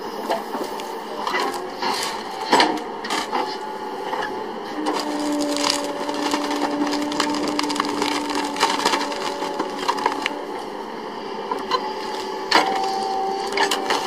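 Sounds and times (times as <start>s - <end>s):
steady whine: 0.0s - 14.0s
machine running: 3.8s - 14.0s
wood cracking and splintering: 4.8s - 10.4s.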